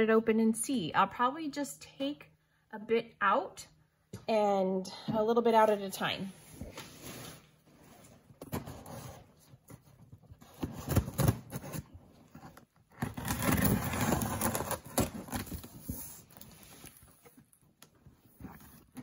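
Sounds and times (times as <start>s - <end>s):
continuous cardboard scraping: 6.4s - 19.0s.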